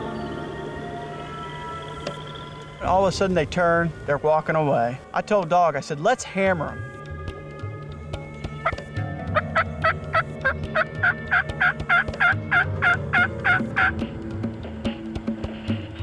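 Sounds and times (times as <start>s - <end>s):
turkey hen yelps: 9.4s - 14.0s.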